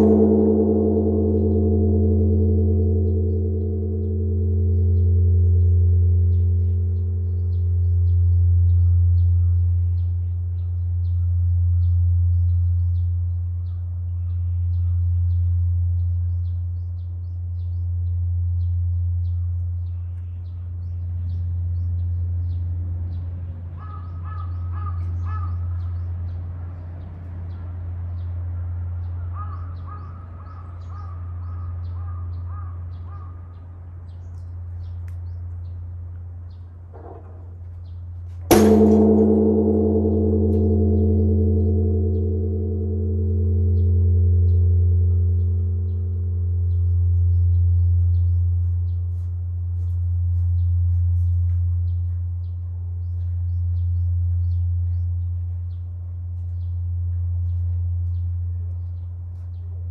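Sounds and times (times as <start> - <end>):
temple bell boom and ringing: 0.0 - 10.1, 38.4 - 54.5
birds calling: 19.3 - 26.5, 27.5 - 49.2.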